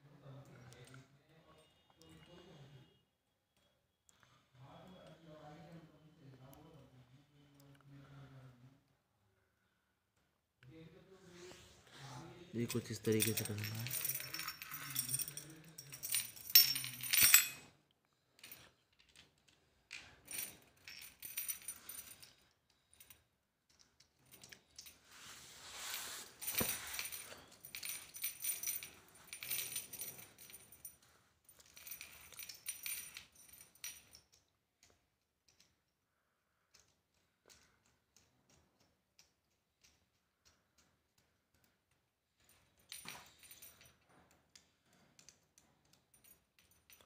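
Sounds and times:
metal chain clinking and jingling: 12.6 - 17.7, 19.9 - 34.5, 42.4 - 47.0.

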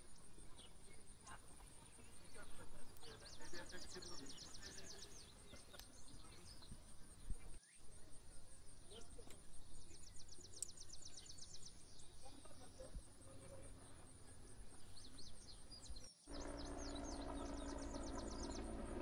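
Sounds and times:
steady high buzz: 16.3 - 19.0.

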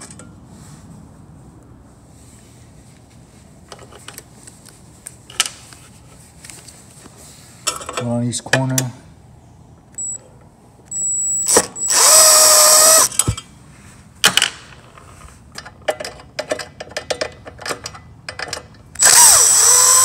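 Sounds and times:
cordless drill motor whine: 10.9 - 13.1, 19.0 - 20.0.

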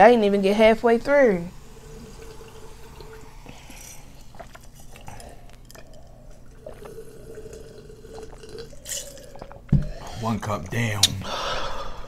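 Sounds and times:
faint hum: 0.0 - 12.0
people gulping soda: 1.6 - 10.2.

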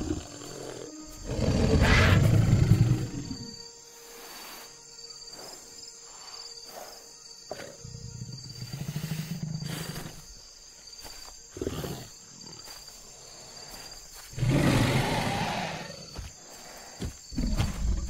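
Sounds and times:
loud dinosaur roar: 14.4 - 16.0
dinosaur growl: 14.4 - 16.1
dinosaur snarl: 14.4 - 16.1.

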